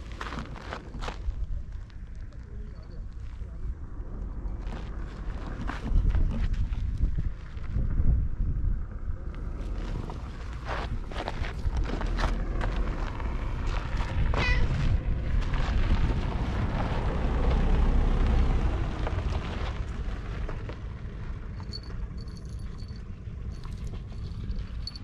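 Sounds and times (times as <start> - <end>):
wind buffeting microphone: 3.6 - 20.4
cat meowing: 14.4 - 14.8.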